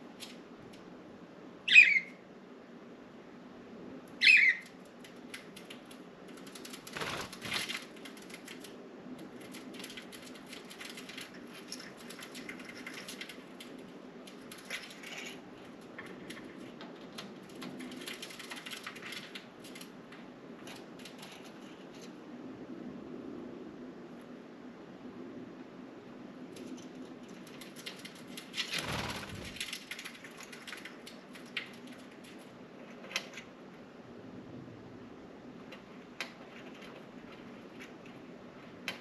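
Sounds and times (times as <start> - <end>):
light clicks and scratching: 0.1 - 0.9, 4.6 - 22.3, 26.5 - 33.8, 35.6 - 39.0
faint bird chatter: 1.7 - 2.2, 4.2 - 5.7
rustling burst: 28.5 - 29.9.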